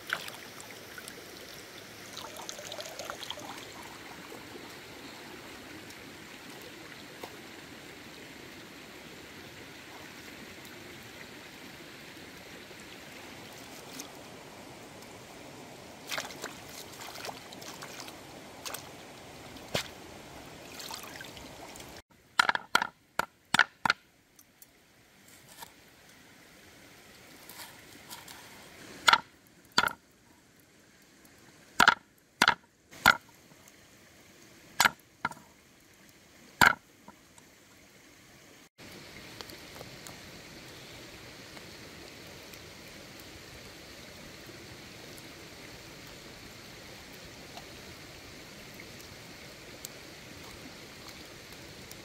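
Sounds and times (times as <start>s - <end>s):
water splashing: 0.0s - 7.6s, 12.7s - 15.2s, 15.8s - 22.9s, 34.6s - 35.6s
river running over stones: 0.0s - 52.0s.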